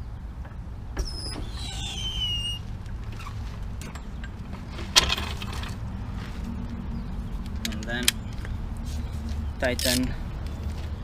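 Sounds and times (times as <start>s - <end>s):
high falling squeal: 1.0s - 3.3s.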